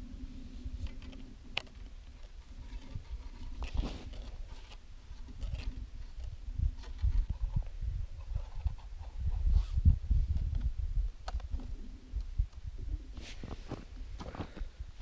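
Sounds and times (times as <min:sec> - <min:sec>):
wind rumbling on microphone: 0:00.0 - 0:15.0
rustling: 0:00.4 - 0:09.8, 0:13.1 - 0:14.7.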